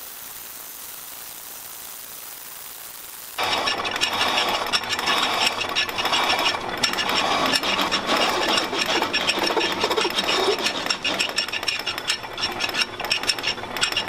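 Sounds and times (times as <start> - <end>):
milling cutter chipping iron: 3.4 - 14.0.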